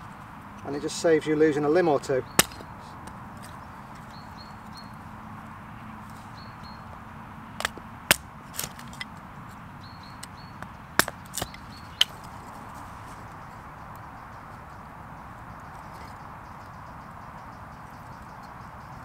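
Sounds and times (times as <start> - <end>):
axe chopping kindling: 2.3 - 3.2, 7.6 - 9.1, 10.6 - 12.2.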